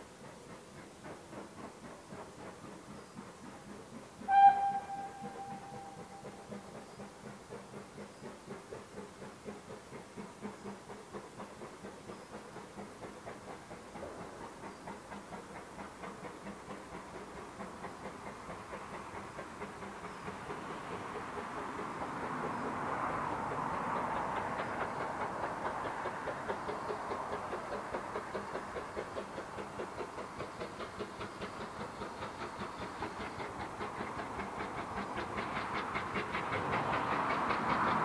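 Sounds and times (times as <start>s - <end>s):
steam locomotive exhaust beats: 0.0s - 38.0s
steam locomotive whistle: 4.2s - 6.8s.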